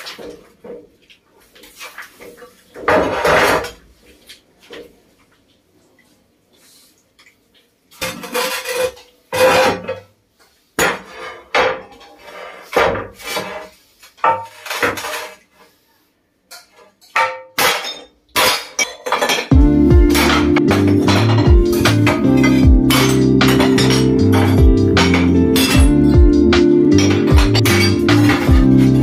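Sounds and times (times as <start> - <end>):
broken tile pieces clattering: 16.6 - 19.5, 20.1 - 25.8
hammer striking ceramic tiles: 16.6 - 26.2, 27.0 - 29.0.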